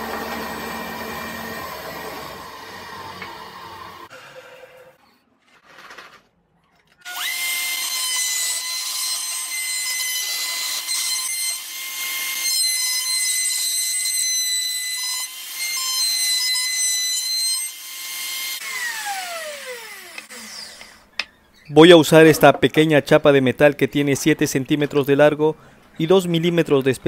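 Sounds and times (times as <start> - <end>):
router bit cutting wood: 0.0 - 4.1, 7.1 - 21.3
router whining: 0.0 - 4.1, 17.7 - 21.4.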